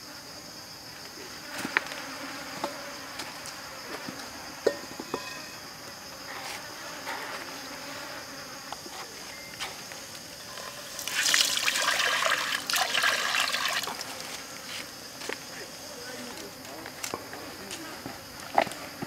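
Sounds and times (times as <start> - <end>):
insects buzzing: 0.0 - 19.0.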